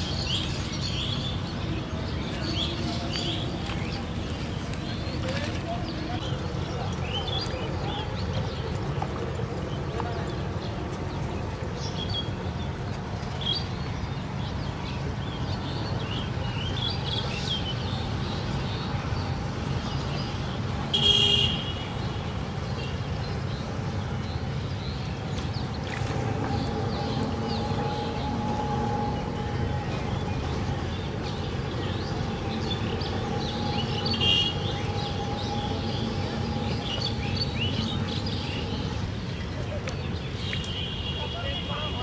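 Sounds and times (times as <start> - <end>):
birds chirping: 0.0 - 42.0
loud horn toot: 20.9 - 21.8.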